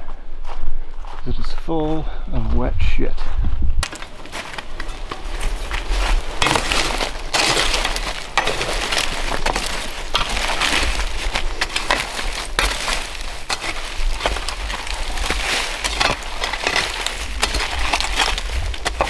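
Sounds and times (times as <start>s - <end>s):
shovel scraping ash: 3.8s - 19.0s.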